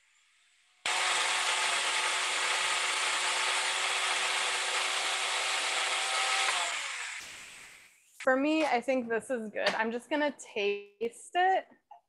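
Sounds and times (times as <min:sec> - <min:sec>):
food processor motor whirring: 0:00.9 - 0:07.6.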